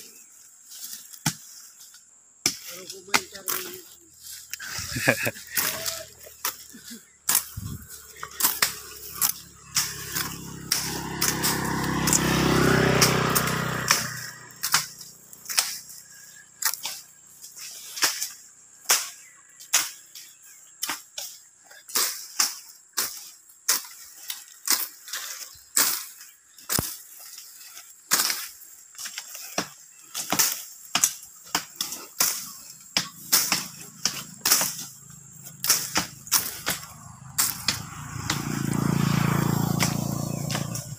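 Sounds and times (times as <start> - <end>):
motor vehicle passing: 4.6 - 17.5, 32.7 - 40.9.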